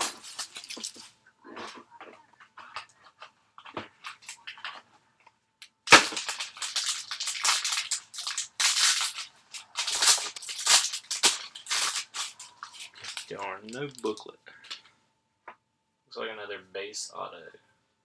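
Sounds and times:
plastic wrapping crackling: 0:00.0 - 0:01.8, 0:02.6 - 0:04.9, 0:05.8 - 0:14.9.

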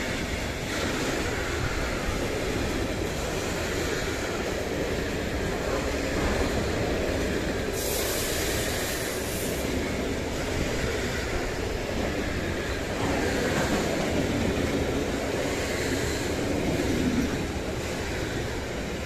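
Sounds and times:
train wheels rumbling on rails: 0:00.0 - 0:19.0
high hiss: 0:07.7 - 0:09.8.

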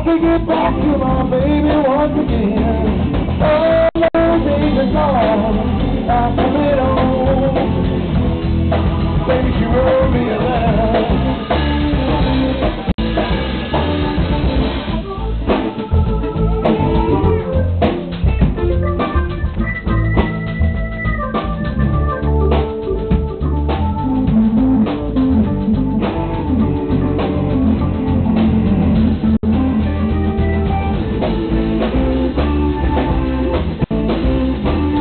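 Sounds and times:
man singing: 0:00.0 - 0:08.2, 0:09.0 - 0:12.3
drum kit: 0:00.0 - 0:35.0
electric guitar: 0:00.0 - 0:35.0
held organ chords: 0:00.0 - 0:35.0.

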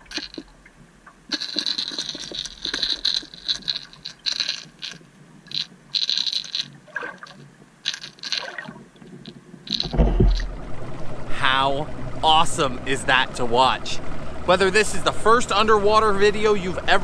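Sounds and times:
underwater clicks: 0:00.0 - 0:10.6.

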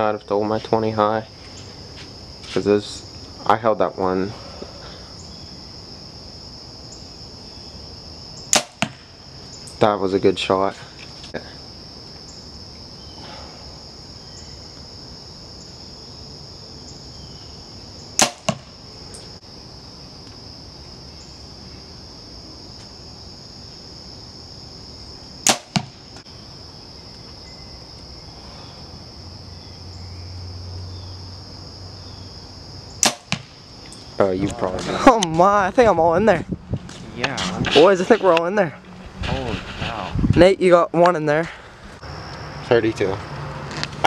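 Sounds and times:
bow string snapping: 0:08.5 - 0:09.0, 0:18.2 - 0:18.6, 0:25.4 - 0:25.9, 0:33.0 - 0:33.5
arrow striking target: 0:08.5 - 0:09.1, 0:18.2 - 0:18.7, 0:25.4 - 0:26.0, 0:33.0 - 0:33.6.

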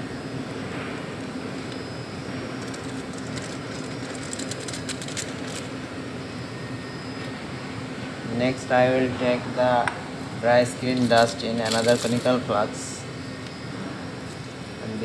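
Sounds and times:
low machine hum: 0:00.0 - 0:15.0
aluminium foil crinkling: 0:02.6 - 0:05.7, 0:10.9 - 0:12.4.

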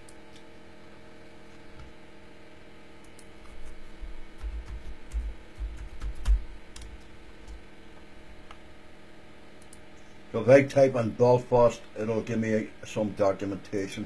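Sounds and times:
keyboard typing: 0:04.4 - 0:07.6.

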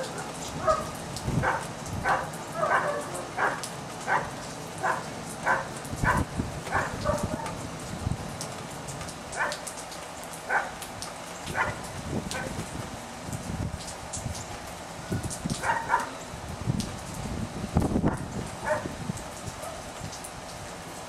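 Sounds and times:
puppies yapping: 0:00.0 - 0:07.6, 0:10.5 - 0:10.8, 0:11.5 - 0:11.8, 0:15.6 - 0:16.1, 0:18.6 - 0:18.9
steady rain patter: 0:00.0 - 0:21.0.

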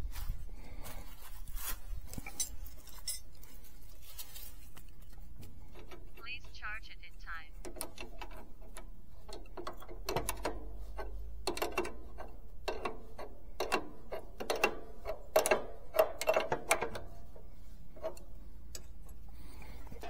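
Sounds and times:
metallic clicks and clanks: 0:07.6 - 0:20.0.

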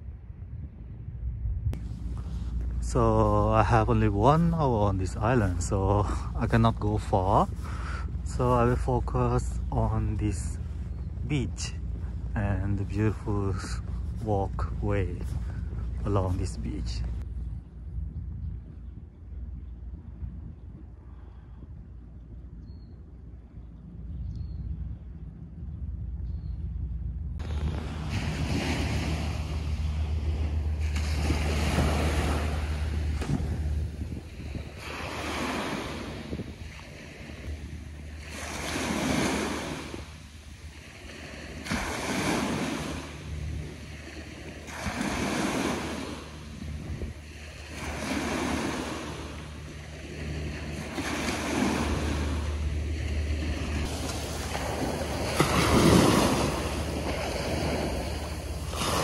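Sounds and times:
wind rumble on microphone: 0:00.0 - 0:59.0
waves washing onto sand: 0:01.8 - 0:17.2, 0:27.4 - 0:59.0.

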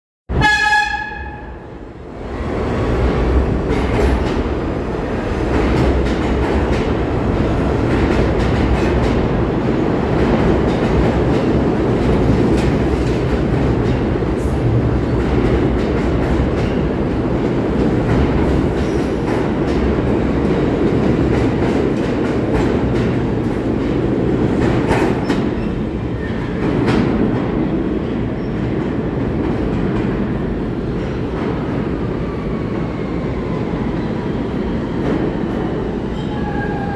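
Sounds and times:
train horn: 0:00.3 - 0:01.7
train rumbling past: 0:00.3 - 0:36.9.

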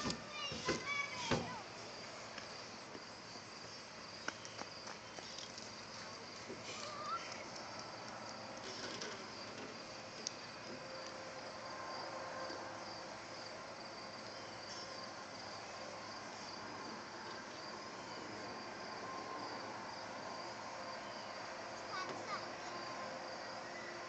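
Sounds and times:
insect chirping: 0:01.6 - 0:24.0.

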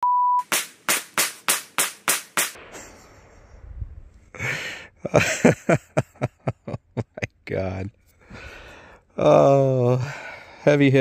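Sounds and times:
rapid gunshots: 0:00.4 - 0:03.2.

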